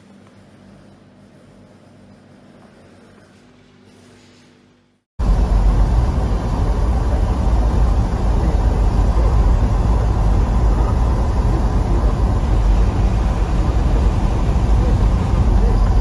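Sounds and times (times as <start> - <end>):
car driving on snowy road: 5.2 - 16.0.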